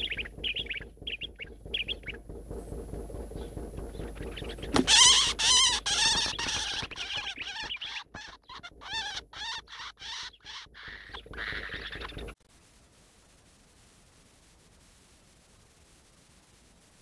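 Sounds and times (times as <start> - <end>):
bird distress squeals: 0.0 - 2.2, 3.4 - 12.4
wings flapping: 0.0 - 12.4.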